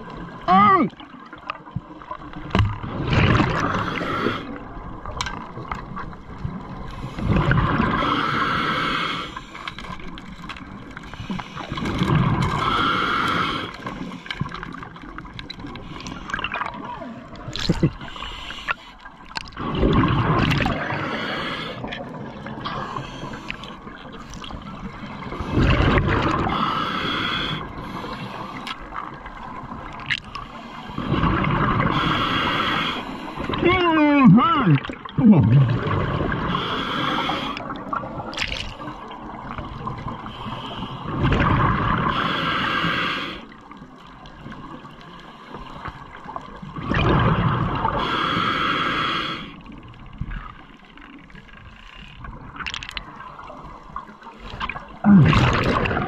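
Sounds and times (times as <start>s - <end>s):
scuba regulator hissing inhalations: 3.6s - 4.6s, 6.9s - 9.7s, 11.0s - 14.3s, 17.9s - 19.1s, 20.8s - 21.9s, 22.7s - 23.9s, 26.4s - 28.8s, 31.8s - 33.5s, 36.3s - 37.7s, 40.2s - 41.3s, 42.0s - 43.6s, 47.8s - 49.6s
bubbling exhalations underwater: 16.3s - 18.2s, 19.4s - 22.8s, 33.5s - 36.7s, 46.7s - 48.3s, 54.5s - 56.0s.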